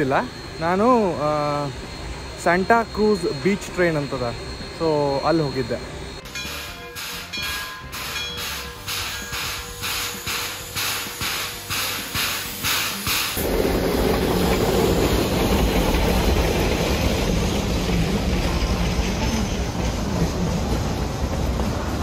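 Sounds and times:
steam locomotive chuffing: 0.0 - 22.0
train rolling rumble: 5.9 - 22.0.

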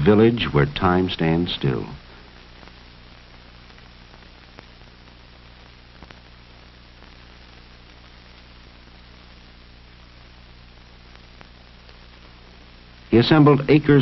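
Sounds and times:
low electrical hum and hiss: 0.0 - 14.0
faint clicks: 6.0 - 6.3.

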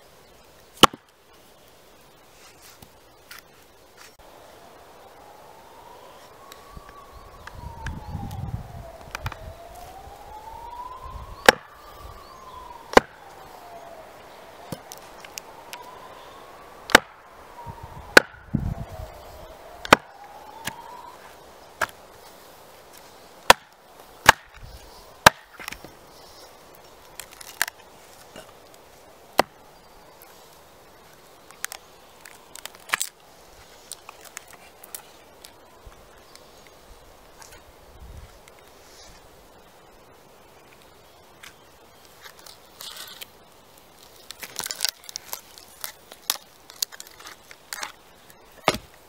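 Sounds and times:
axe splitting log on stump: 0.8 - 1.0, 11.4 - 11.7, 12.9 - 13.2, 16.9 - 17.1, 18.2 - 18.4, 19.8 - 20.8, 23.5 - 24.6, 25.2 - 25.8, 29.4 - 29.6, 48.6 - 49.0
distant siren wailing: 4.2 - 23.2.

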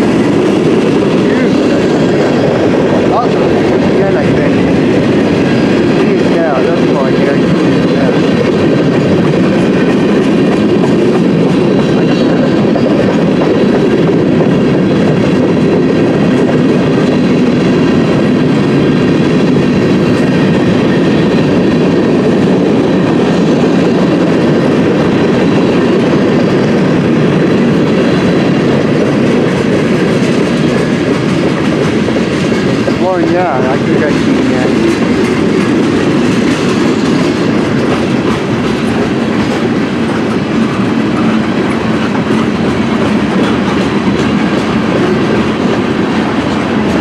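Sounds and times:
train wheels rumbling on rails: 0.0 - 47.0.

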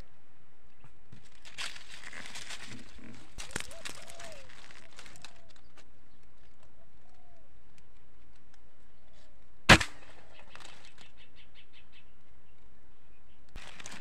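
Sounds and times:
air rifle shot: 9.7 - 10.3.

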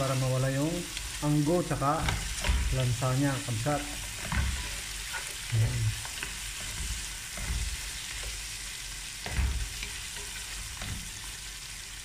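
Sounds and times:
meat sizzling in hot oil: 0.0 - 12.0
spatula stirring and scraping meat: 0.0 - 12.0.

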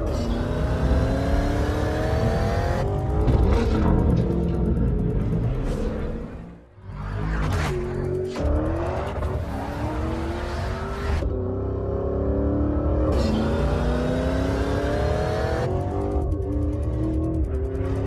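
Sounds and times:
sports car engine accelerating: 0.0 - 18.0.

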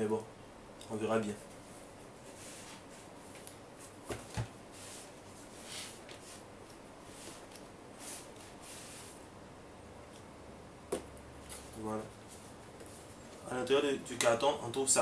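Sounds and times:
cardboard rustling and scraping: 1.6 - 6.5.

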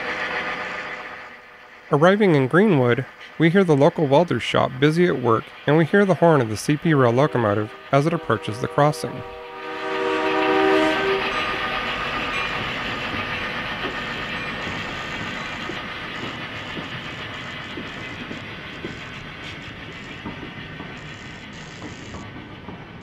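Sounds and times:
train rumbling past: 0.0 - 23.0
diesel locomotive horn: 7.2 - 11.7
train wheel clicks: 10.9 - 23.0.

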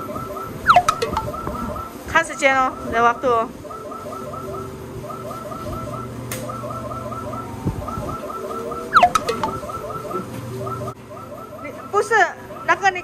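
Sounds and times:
machine clack with falling tone: 0.7 - 1.5
electronic game tune: 0.7 - 1.8, 8.3 - 10.9.

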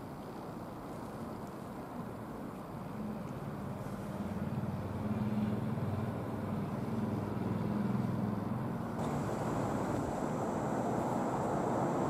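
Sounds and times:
locomotive diesel engine droning: 3.8 - 12.0.

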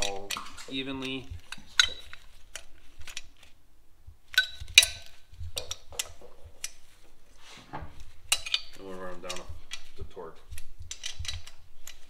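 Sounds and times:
hand tools clinking on metal: 0.0 - 2.2, 8.3 - 10.1.

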